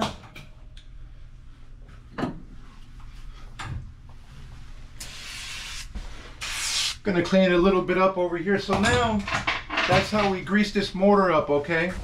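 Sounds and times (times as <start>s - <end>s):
low steady hum: 0.0s - 12.0s
aerosol spray can hissing: 5.0s - 7.0s.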